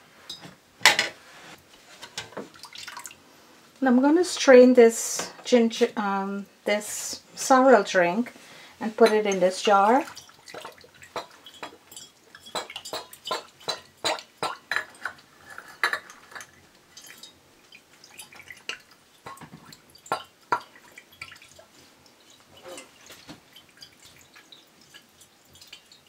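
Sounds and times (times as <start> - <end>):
liquid dripping and splashing: 2.4 - 3.2, 9.3 - 26.0
utensils and glass clinking: 11.1 - 17.4, 22.5 - 23.1.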